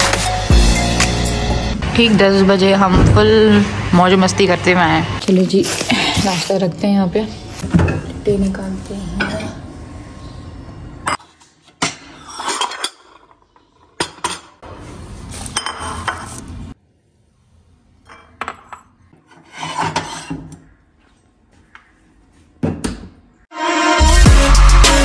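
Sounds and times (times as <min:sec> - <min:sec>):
dishes clinking and scraping: 0:09.2 - 0:09.6, 0:11.0 - 0:14.6, 0:15.4 - 0:16.5, 0:18.0 - 0:20.7.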